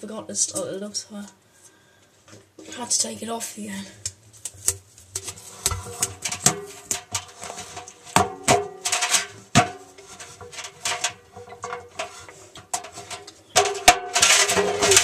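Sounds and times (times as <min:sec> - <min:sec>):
scratching: 0:04.0 - 0:15.0.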